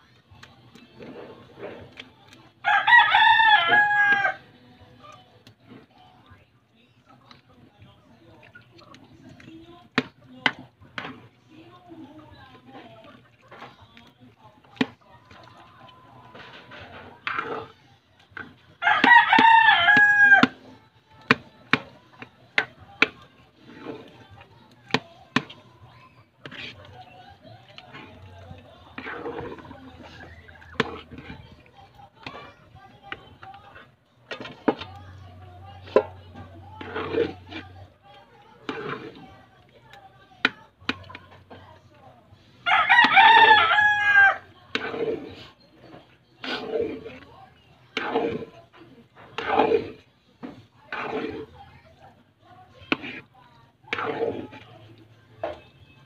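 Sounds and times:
rooster crowing: 2.6s - 4.4s, 42.7s - 44.4s.

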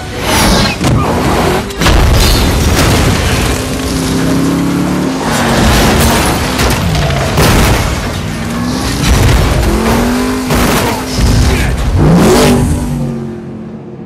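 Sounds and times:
crashing impacts: 1.8s - 4.5s, 5.1s - 12.0s.

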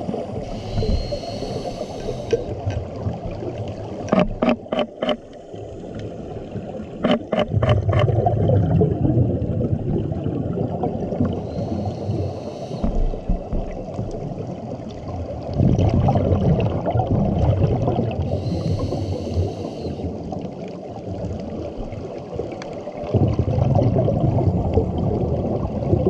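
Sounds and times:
underwater gurgling rumble: 0.0s - 26.0s
regulator bubbles: 7.0s - 11.8s, 23.1s - 26.0s.

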